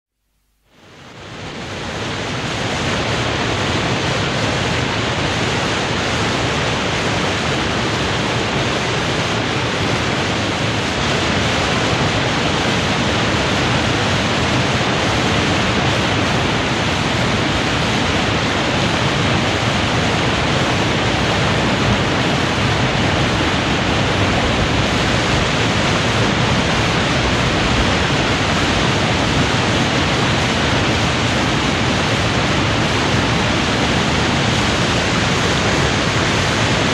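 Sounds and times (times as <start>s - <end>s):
water rushing over a weir: 0.7s - 36.9s.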